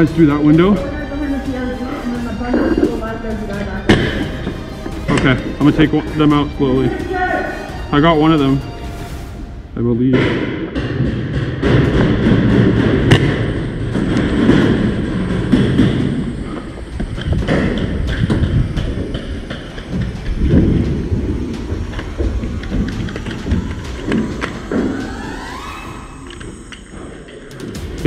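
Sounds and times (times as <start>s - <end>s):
low rumble of wind: 9.3s - 28.0s
irregular thuds: 10.1s - 28.0s.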